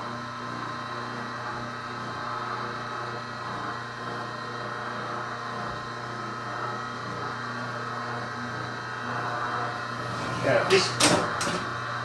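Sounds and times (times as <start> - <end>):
printing press running: 9.7 - 11.8.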